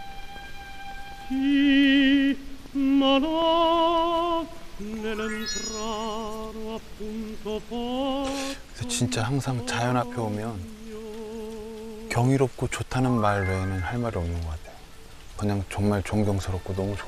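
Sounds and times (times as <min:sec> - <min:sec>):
operatic voice singing: 0:01.3 - 0:12.4.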